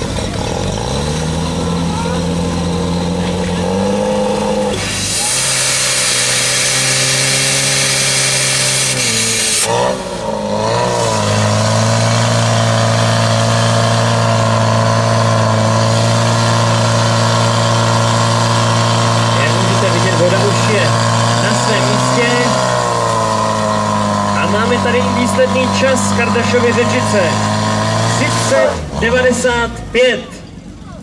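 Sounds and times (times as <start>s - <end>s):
pump engine running at high revs: 0.0s - 30.1s
loud hiss: 4.8s - 9.7s.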